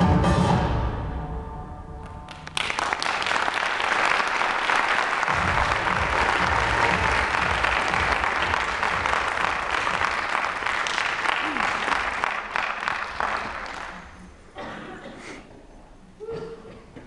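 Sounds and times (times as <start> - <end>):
music: 0.0 - 2.7, 5.3 - 11.4
theatre audience applauding: 2.3 - 14.4.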